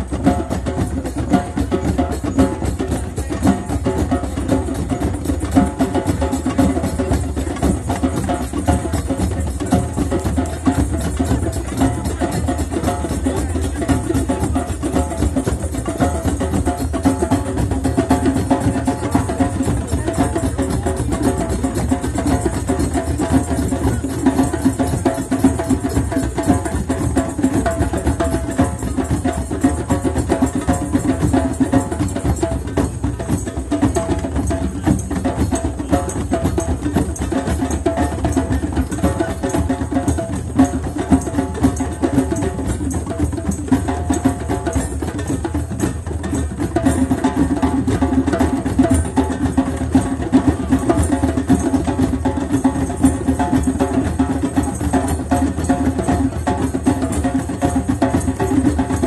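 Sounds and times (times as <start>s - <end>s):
rhythmic drumming: 0.0s - 59.0s.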